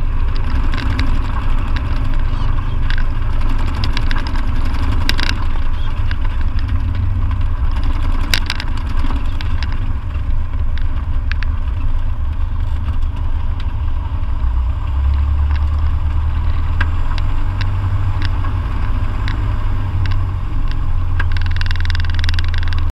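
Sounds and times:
light aircraft engine drone: 0.0 - 22.9
short clicks and rattles: 0.2 - 12.0, 16.4 - 22.9.

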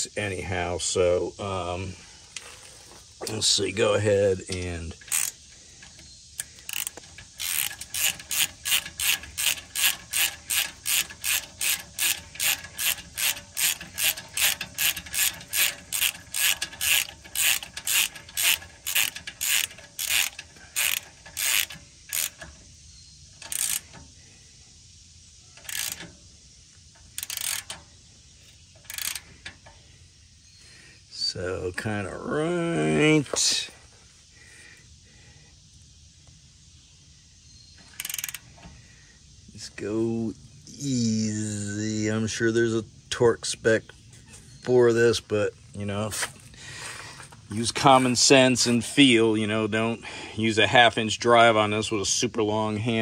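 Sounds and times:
socket ratchet clicking: 4.4 - 22.8, 23.4 - 24.1, 25.6 - 26.2, 26.9 - 27.9, 28.6 - 29.8, 37.9 - 38.5.

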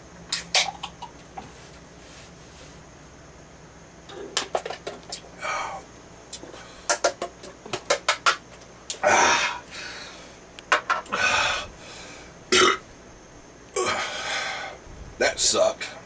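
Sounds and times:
man burping: 12.5 - 12.8, 13.8 - 14.1.

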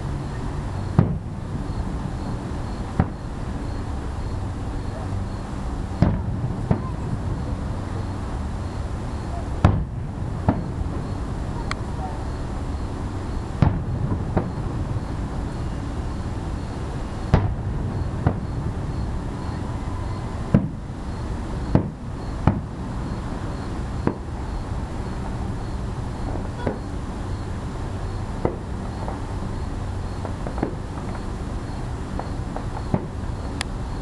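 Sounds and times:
steady background noise: 0.0 - 34.0
distant fireworks bangs: 0.3 - 27.4, 28.0 - 34.0.

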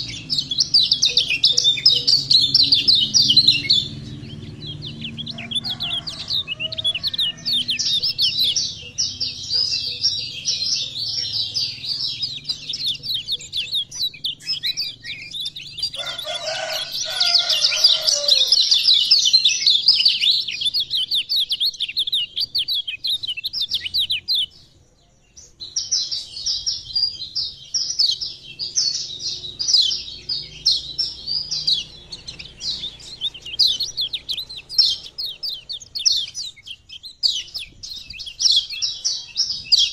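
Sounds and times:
white-eye bird twittering: 0.0 - 24.5, 25.6 - 39.9.

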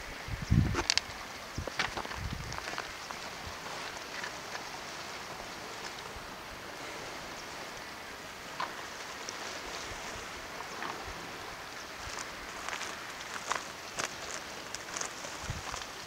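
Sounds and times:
sea washing against rocks: 0.6 - 16.0.

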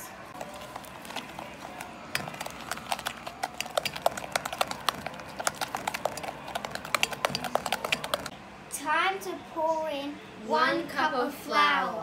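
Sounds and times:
spatula knocking glass bowl: 0.4 - 8.3.

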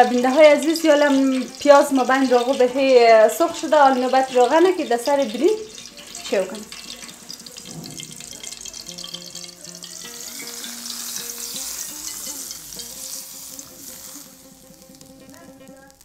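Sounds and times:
hot oil sizzling on rice: 0.0 - 16.0.

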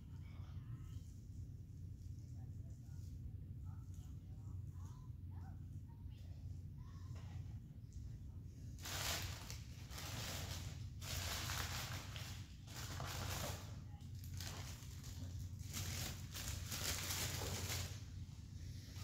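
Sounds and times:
low steady hum: 0.0 - 19.0
paper and cardboard rustling: 8.8 - 18.2.

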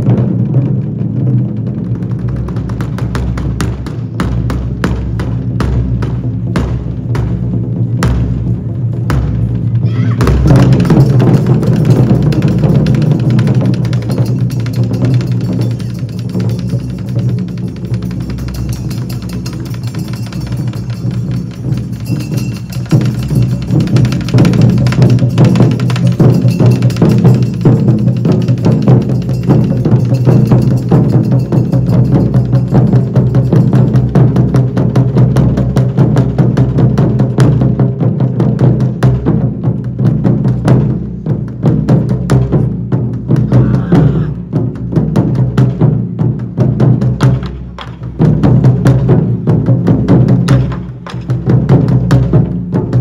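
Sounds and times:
taiko drums beating fast: 0.0 - 53.0.

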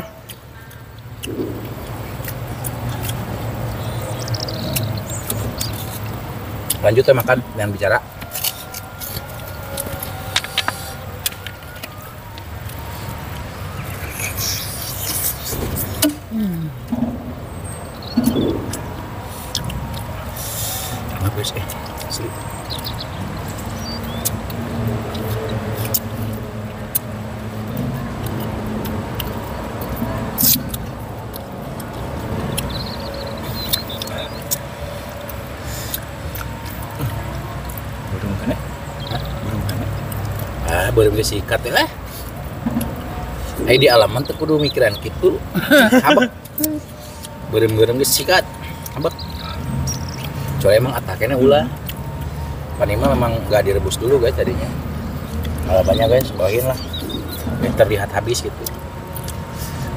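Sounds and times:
faint whining tones: 0.0 - 28.1
traffic rumble: 0.0 - 59.9
chewing: 0.1 - 59.9
mouth smacking while eating: 0.2 - 7.3, 12.6 - 17.3, 27.8 - 37.9
low rumble: 1.3 - 4.3, 15.8 - 20.0
faint high chirping: 6.7 - 24.4, 32.4 - 39.8.

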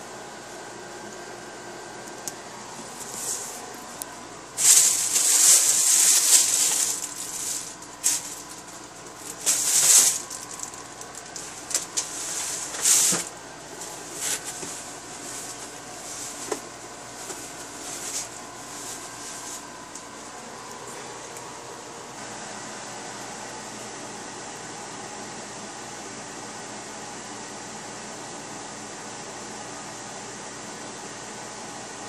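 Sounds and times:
plastic bags rustling: 2.7 - 20.0.

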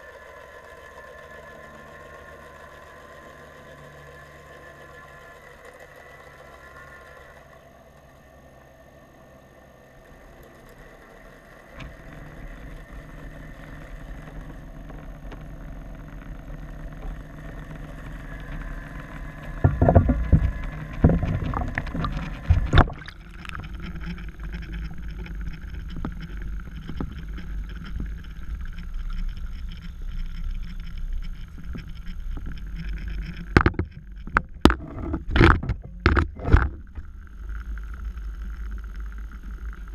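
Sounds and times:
faint steady hum: 0.0 - 39.9
muffled underwater rumble: 10.0 - 39.9
camera knocks and thumps: 19.6 - 23.7, 33.5 - 37.0.

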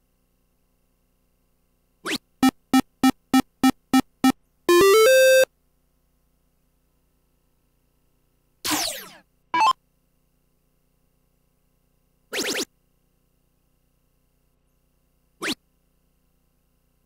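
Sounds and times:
electronic beeps: 2.4 - 5.5, 9.6 - 9.8.

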